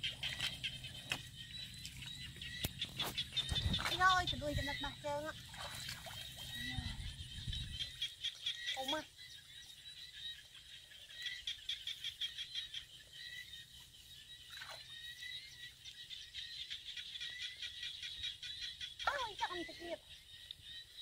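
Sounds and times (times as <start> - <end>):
chorus of small animals calling: 6.1 - 13.7.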